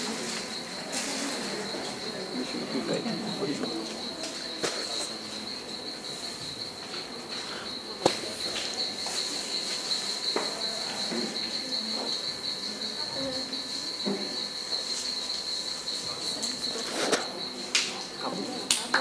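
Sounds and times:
cricket trill: 0.0 - 19.0.

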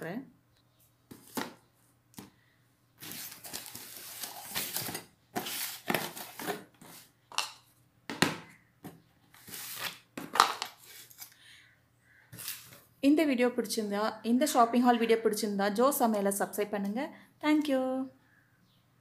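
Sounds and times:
cardboard boxes scraping on tiles: 3.0 - 7.2, 9.3 - 10.0, 12.4 - 12.8.

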